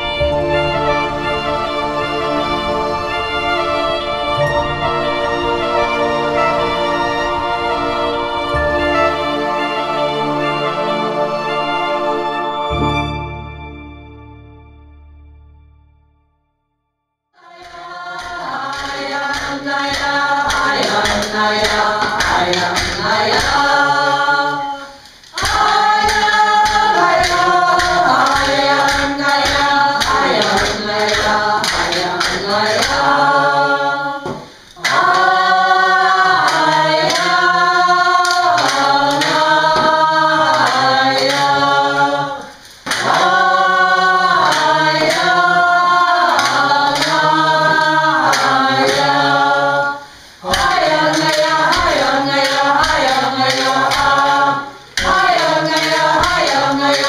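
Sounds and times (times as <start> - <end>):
group singing: 0.0 - 13.2, 17.4 - 57.0
steady drumbeat: 17.6 - 24.0, 25.3 - 33.2.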